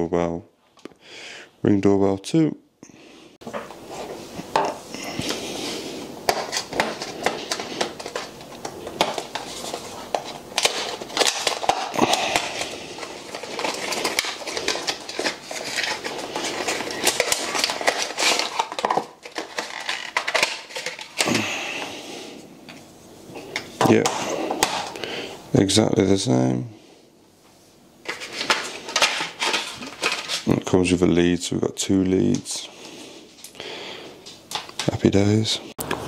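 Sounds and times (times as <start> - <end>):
cardboard packaging rustling: 3.4 - 21.8, 28.0 - 30.7.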